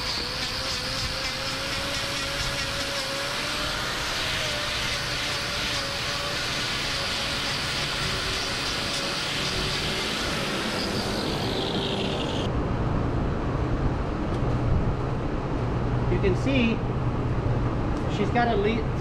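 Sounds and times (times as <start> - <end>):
angle grinder hissing against hoof: 0.0 - 12.1
low rumble: 11.0 - 18.0.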